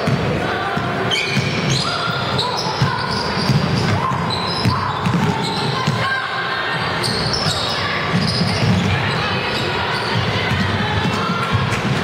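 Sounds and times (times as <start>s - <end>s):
sneakers squeaking: 0.0s - 12.0s
spectators chattering: 0.0s - 12.0s.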